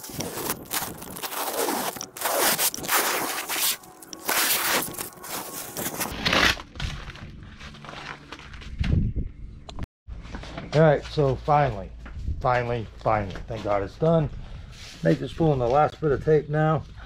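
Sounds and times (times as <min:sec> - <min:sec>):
masking tape ripping off: 0:00.0 - 0:07.0.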